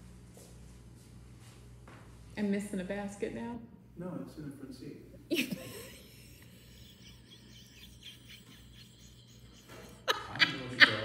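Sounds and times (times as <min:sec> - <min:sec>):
woman laughing: 0:05.2 - 0:11.0.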